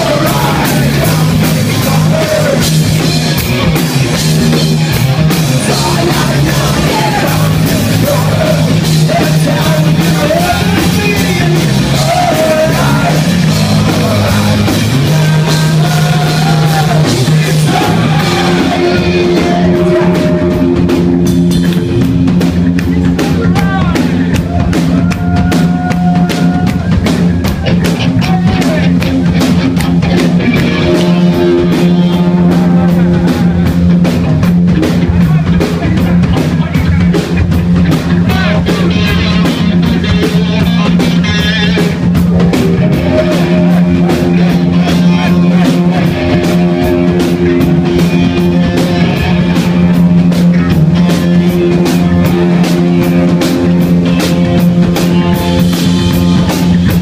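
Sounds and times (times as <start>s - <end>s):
lead singer singing: 0.0s - 3.6s, 4.9s - 21.3s, 30.5s - 34.2s, 38.0s - 50.0s
bass guitar: 0.0s - 57.0s
drum kit: 0.0s - 57.0s
electric guitar: 0.0s - 57.0s.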